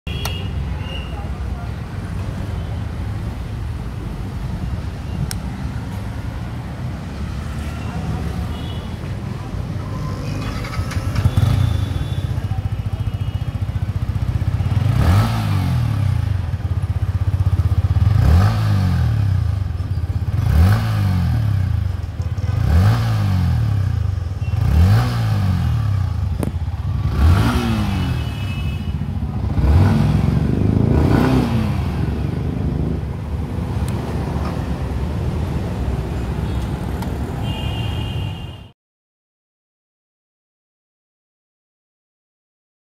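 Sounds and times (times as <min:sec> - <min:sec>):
motorcycle engine revving: 0:10.1 - 0:34.3.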